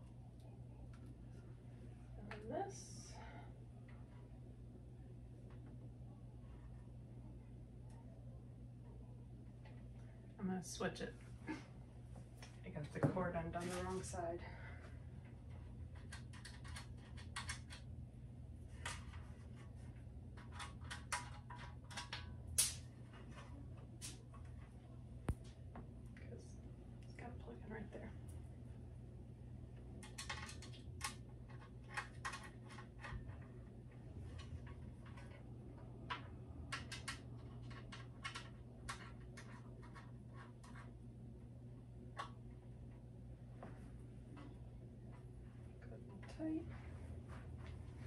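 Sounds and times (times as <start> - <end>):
low hum: 0.0 - 48.0.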